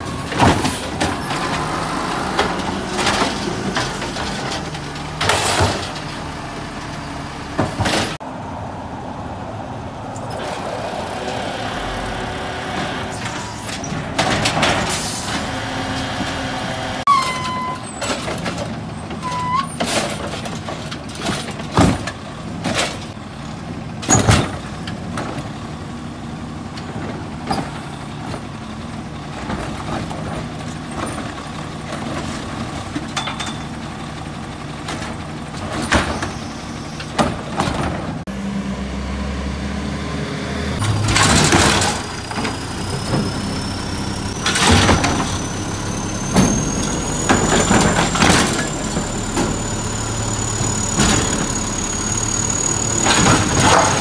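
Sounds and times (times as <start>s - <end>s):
garbage truck engine running: 0.0s - 8.2s, 10.3s - 54.0s
brief squeals: 17.1s - 18.1s
clanks and bangs: 40.8s - 43.6s, 44.3s - 51.8s, 52.8s - 54.0s.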